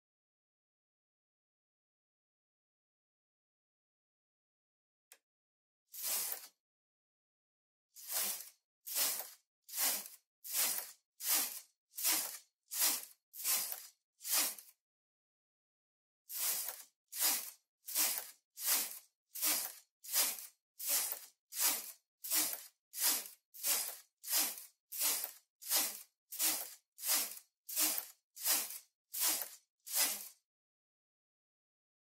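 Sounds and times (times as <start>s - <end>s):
knitting machine carriage swishing: 5.9s - 6.6s, 8.0s - 14.8s, 16.3s - 30.4s.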